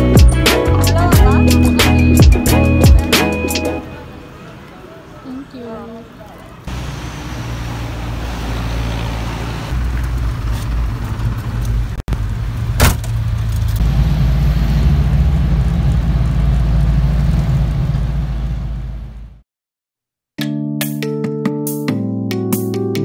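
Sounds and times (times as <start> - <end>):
road traffic: 0.0 - 19.4
vehicle driving past: 6.0 - 12.5
engine rumble inside cabin: 6.7 - 19.4.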